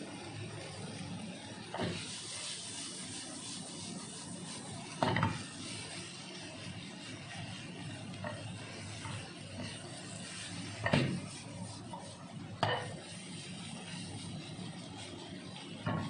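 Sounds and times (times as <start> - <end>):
food sizzling: 0.0 - 16.0
wooden spatula scraping frying pan: 0.4 - 16.0
sharp knocks against pan: 12.6 - 12.9.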